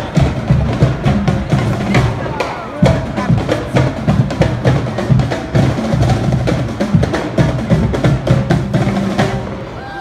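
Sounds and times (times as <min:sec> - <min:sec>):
marching bass and snare drums: 0:00.0 - 0:09.8.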